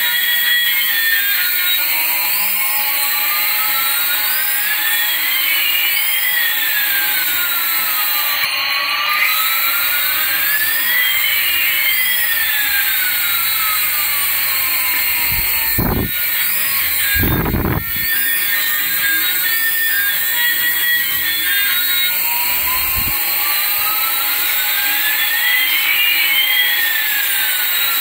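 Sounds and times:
synthetic jet engine whine: 0.0 - 28.0.

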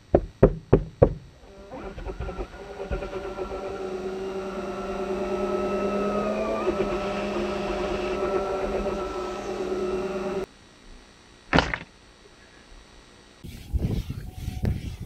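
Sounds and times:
power tool motor whine: 1.4 - 10.5.

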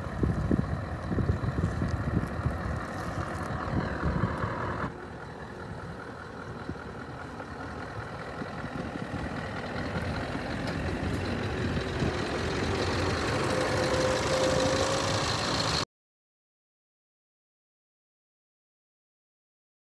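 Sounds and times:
diesel engine idling: 0.0 - 15.9.

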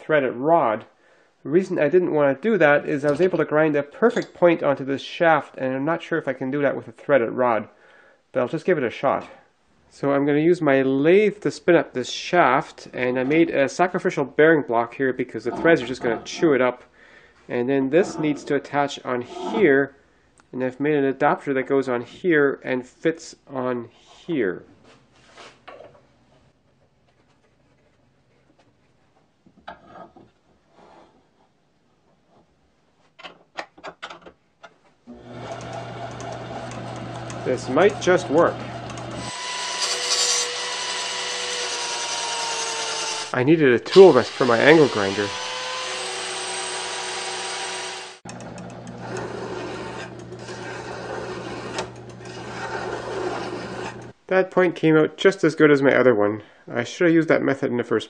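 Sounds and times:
wood rubbing on threaded rod: 19.2 - 19.7, 35.4 - 54.2
lathe motor humming: 35.1 - 42.3, 45.3 - 54.1
angle grinder cutting metal: 35.1 - 54.1
file rasping on metal rod: 39.2 - 43.3, 49.0 - 54.1.

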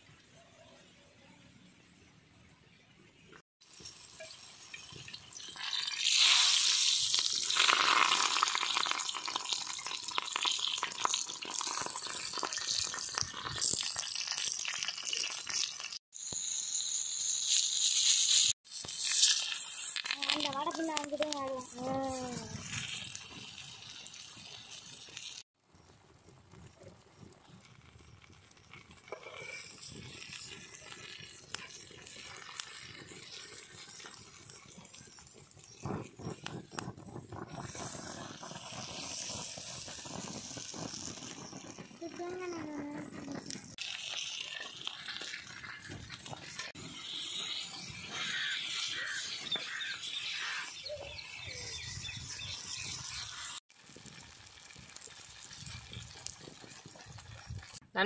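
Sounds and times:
sharp crackles: 3.3 - 58.0
fish sizzling in oil: 3.6 - 25.9, 26.5 - 58.0
metal spatula scraping griddle: 29.1 - 30.1, 43.4 - 50.7.

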